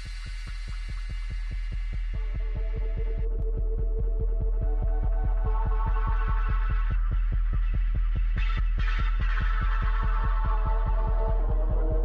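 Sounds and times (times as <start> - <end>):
electronic music with fast pulse: 0.0 - 12.0.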